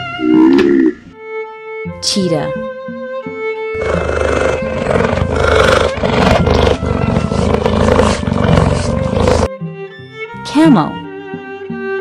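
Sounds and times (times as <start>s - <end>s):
big cat growling: 0.2s - 1.1s, 3.8s - 9.5s.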